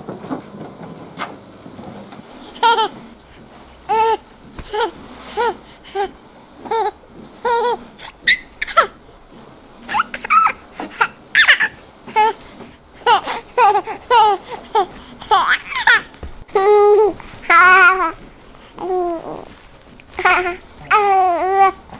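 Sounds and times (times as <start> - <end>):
baby laughing and babbling: 2.4 - 3.2, 3.9 - 9.0, 9.8 - 12.4, 13.0 - 21.9.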